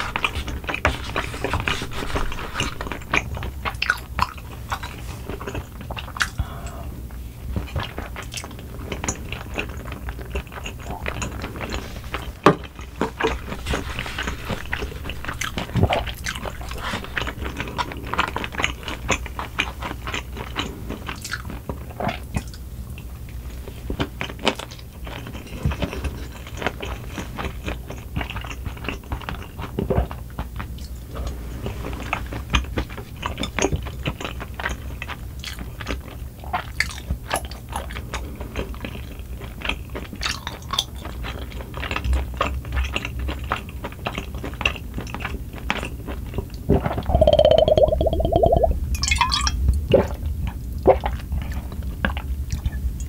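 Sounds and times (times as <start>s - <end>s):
chewing and crunching food: 0.0s - 6.6s, 7.4s - 23.1s, 23.8s - 31.0s, 32.0s - 46.6s.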